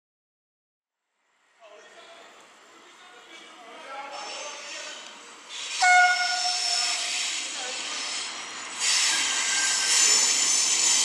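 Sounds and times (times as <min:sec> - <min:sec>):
wheels squealing on rails: 0:04.1 - 0:11.0
train horn blast: 0:05.8 - 0:07.0.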